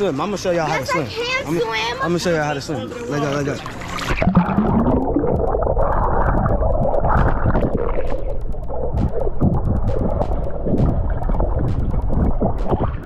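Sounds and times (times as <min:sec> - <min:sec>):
muffled underwater gurgle: 0:03.7 - 0:13.0.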